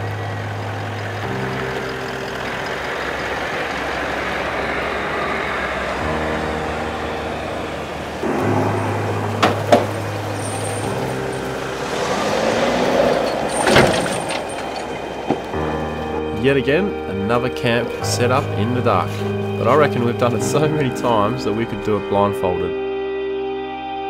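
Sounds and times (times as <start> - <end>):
vehicle driving on dirt track: 0.0 - 16.2
background music chords: 0.0 - 24.0
sharp knocks: 8.3 - 11.0.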